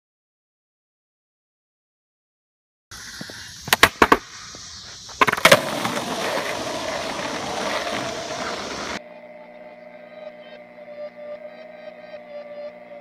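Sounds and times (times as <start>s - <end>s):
skateboard wheels rolling on asphalt: 2.9s - 9.0s
skateboard clacks: 3.0s - 4.3s, 5.1s - 9.0s.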